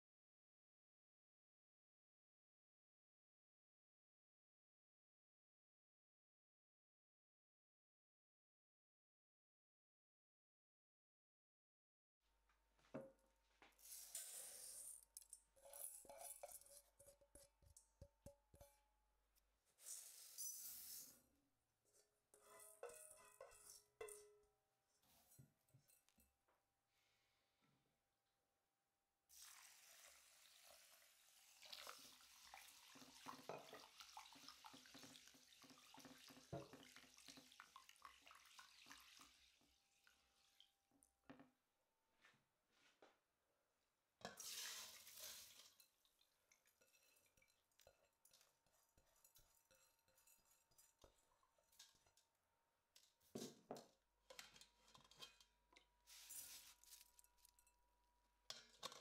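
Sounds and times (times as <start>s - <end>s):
tap water pouring into bowl: 29.4s - 40.8s
rice poured into metal bowl: 44.3s - 45.9s, 56.0s - 57.6s
hand swishing rice in water: 56.1s - 57.2s.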